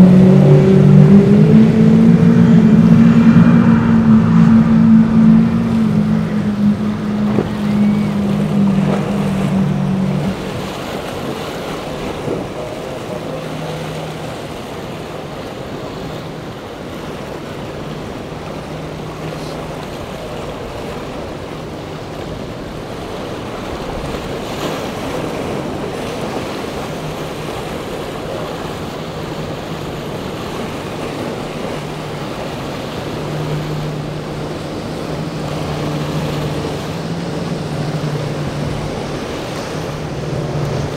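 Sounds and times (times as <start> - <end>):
boat diesel engines droning: 0.0 - 40.9
outboard motors running hard: 0.0 - 40.9
surf and spray: 0.0 - 40.9
wind on microphone: 0.0 - 40.9.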